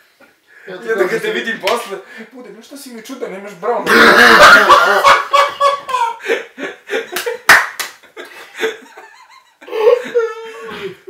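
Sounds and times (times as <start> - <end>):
men laughing hard: 3.9 - 11.0
hand slap: 7.2 - 8.0.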